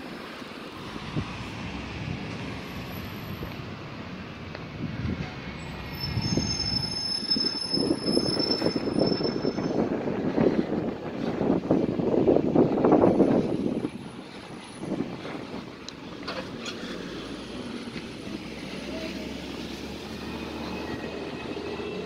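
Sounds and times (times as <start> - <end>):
car passing: 0.0 - 22.0
road traffic: 0.0 - 22.0
high-pitched metallic squeal: 5.6 - 9.9, 19.8 - 22.0.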